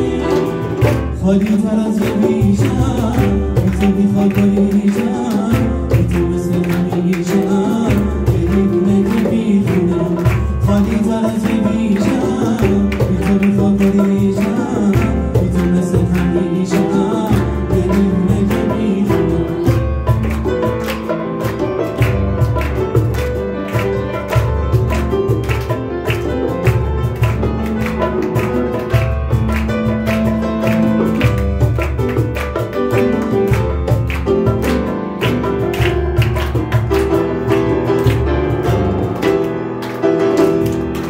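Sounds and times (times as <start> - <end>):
man singing pop ballad: 0.0 - 20.1
grand piano: 0.0 - 41.0
hand percussion: 0.0 - 41.0.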